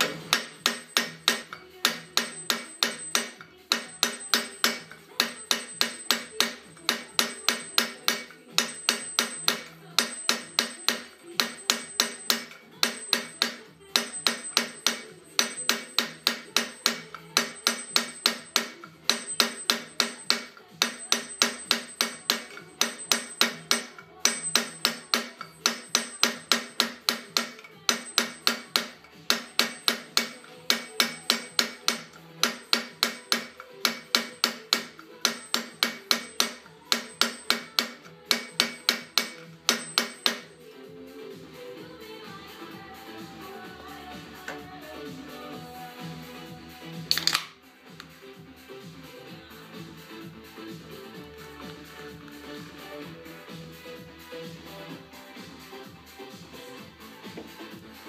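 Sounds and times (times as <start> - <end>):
hammer striking metal: 0.0 - 40.7, 47.1 - 48.0.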